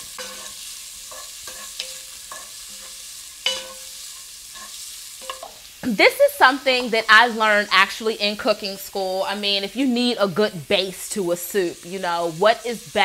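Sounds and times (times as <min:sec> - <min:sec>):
wooden spoon scraping pan: 0:00.0 - 0:05.6
onions sizzling in oil: 0:00.0 - 0:13.0.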